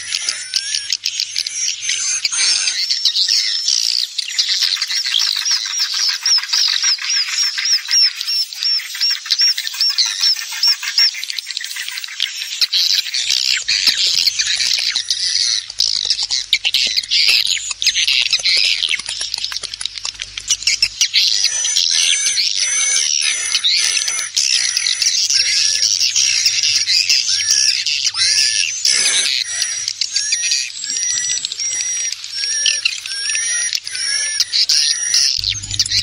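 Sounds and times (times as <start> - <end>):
swiftlets chirping and twittering: 0.0 - 36.0
faint low hum: 35.4 - 36.0.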